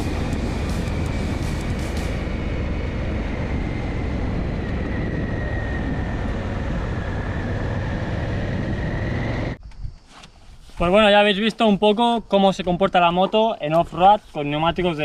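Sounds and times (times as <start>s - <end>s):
motorcycle engine running: 0.0s - 6.1s
faint high whine: 0.0s - 9.6s
wind rushing over microphone: 0.0s - 10.0s.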